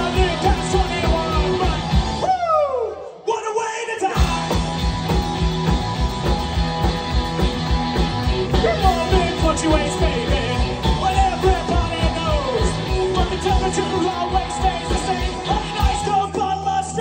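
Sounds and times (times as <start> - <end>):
live rock band playing: 0.0 - 2.3, 4.2 - 17.0
man singing: 0.0 - 4.7, 8.5 - 17.0.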